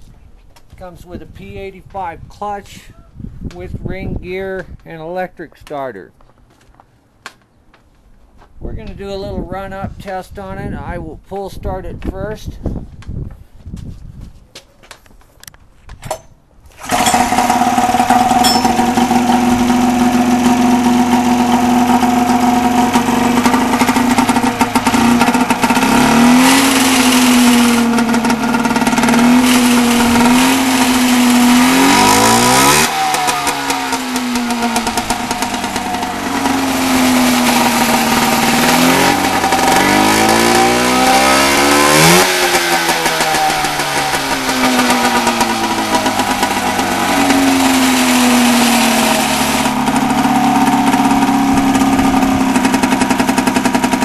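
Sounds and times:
pull starter: 16.0s - 54.0s
snowmobile engine revving: 16.8s - 54.0s.

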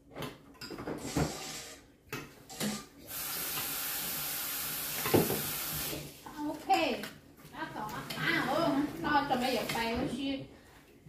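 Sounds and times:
kitchen tap running into sink: 2.6s - 6.1s.

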